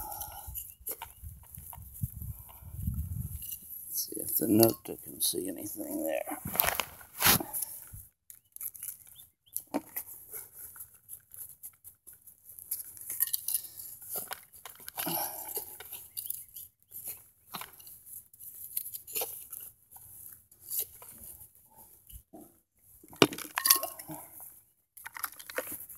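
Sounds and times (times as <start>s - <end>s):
trowel scraping into soil: 6.4s - 8.0s, 15.4s - 21.4s
dirt and stones dropping: 6.4s - 10.2s, 23.0s - 24.4s, 25.0s - 25.9s.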